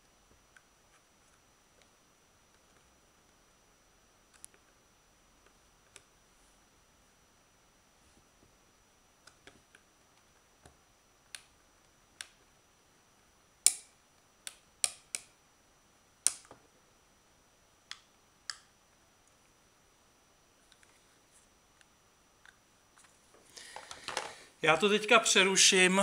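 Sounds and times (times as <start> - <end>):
plastic parts clicking and snapping: 23.7 - 24.4.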